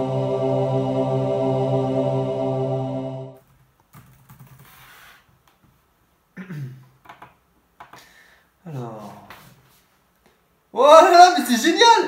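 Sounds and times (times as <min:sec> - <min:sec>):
held music chord: 0:00.0 - 0:03.4
soft laptop keyboard typing: 0:03.4 - 0:04.8.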